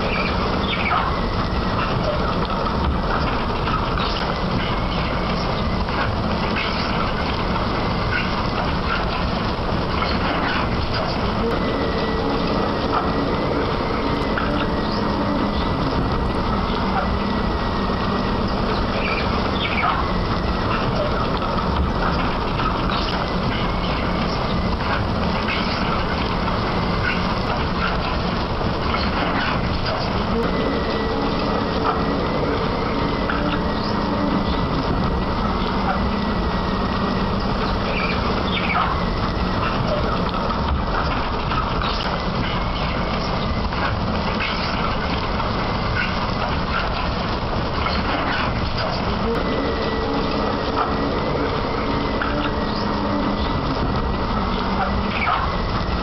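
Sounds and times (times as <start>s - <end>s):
machine squeaks and squeals: 0.0s - 9.3s, 9.9s - 45.1s
excavator mechanical rumble: 0.0s - 56.0s.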